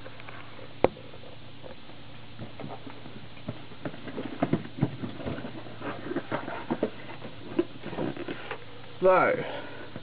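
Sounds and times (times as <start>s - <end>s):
cardboard and plastic handling: 2.5s - 8.7s.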